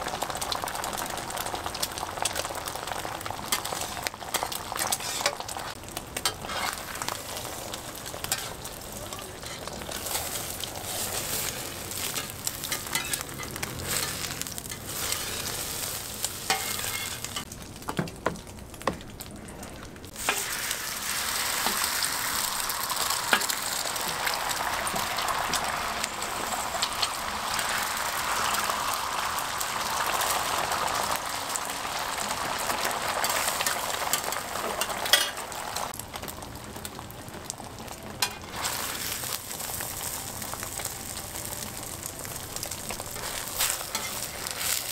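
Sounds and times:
egg sizzling on griddle: 0.0 - 19.3, 20.1 - 44.9
metal spatula scraping steel: 3.7 - 5.4, 6.2 - 6.9, 9.4 - 17.4, 43.2 - 44.9.

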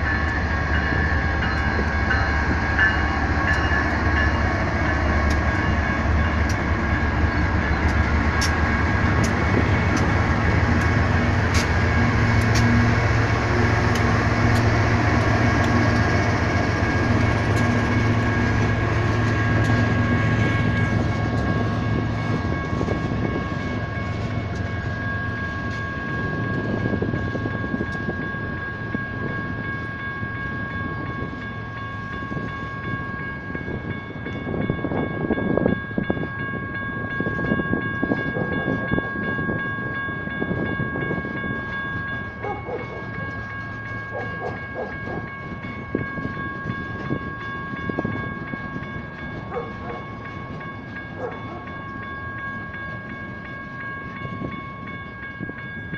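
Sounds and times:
train wheels clicking: 0.0 - 28.2, 40.9 - 55.9
crossing bells ringing: 0.0 - 55.9
diesel locomotives passing: 0.0 - 55.9.

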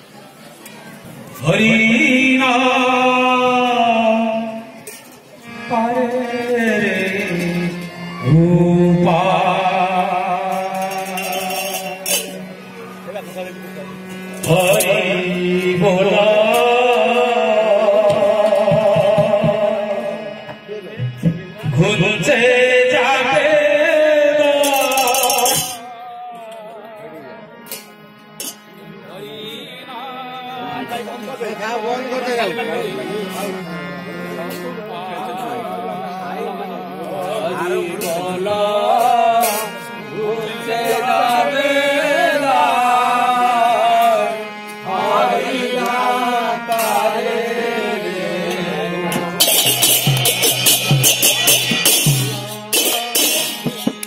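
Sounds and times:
man singing a chant: 1.4 - 4.8, 5.5 - 12.3, 14.4 - 20.6, 21.6 - 27.5, 29.1 - 31.3, 34.4 - 50.1.

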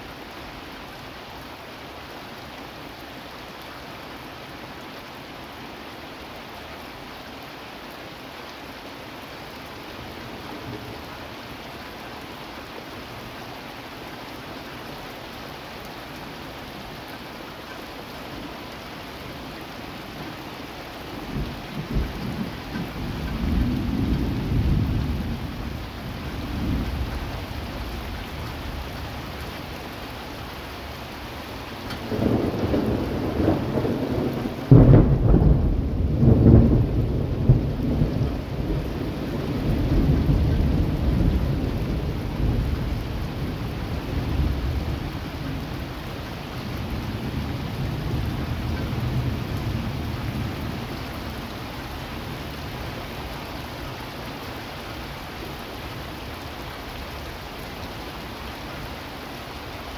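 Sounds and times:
steady rain: 0.0 - 59.9
thunder rumbling and cracking: 21.2 - 28.0, 31.9 - 45.8.

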